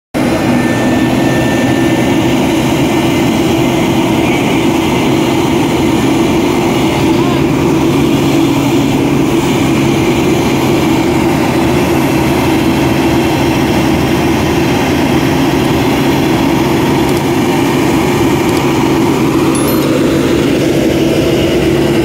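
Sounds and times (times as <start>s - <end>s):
truck diesel engine under load: 0.1s - 22.0s.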